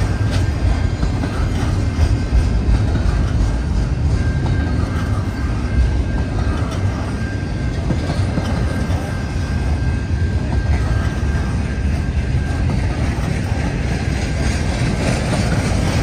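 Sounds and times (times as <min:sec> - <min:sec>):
freight train wheels rumbling: 0:00.0 - 0:16.0.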